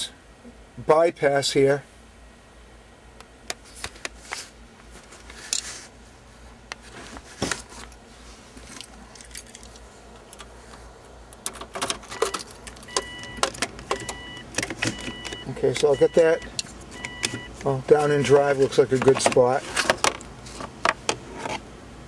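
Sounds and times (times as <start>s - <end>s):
key ring jangling: 9.1s - 9.8s
car warning chime beeping: 12.1s - 17.6s.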